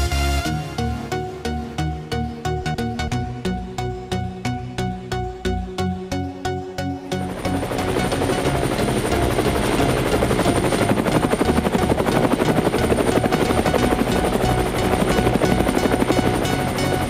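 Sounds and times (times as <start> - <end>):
background music: 0.0 - 17.0
small propeller motor whirring: 7.2 - 17.0.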